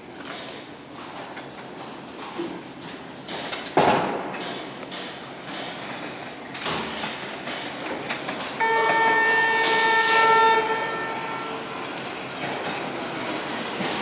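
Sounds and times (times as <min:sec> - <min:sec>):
subway train rumble: 0:00.0 - 0:14.0
train horn blast: 0:08.6 - 0:11.9.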